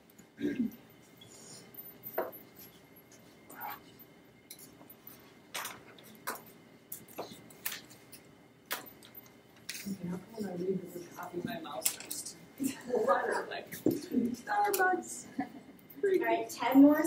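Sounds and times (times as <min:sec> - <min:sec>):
faint steady hum: 0:00.0 - 0:17.0
paper and pens clicking and rustling: 0:04.6 - 0:10.0, 0:11.8 - 0:12.3.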